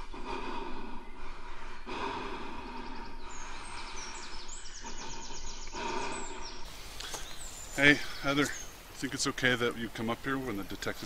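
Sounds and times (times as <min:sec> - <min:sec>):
slow heavy breathing: 0:00.0 - 0:08.8
birds chirping: 0:00.0 - 0:11.0.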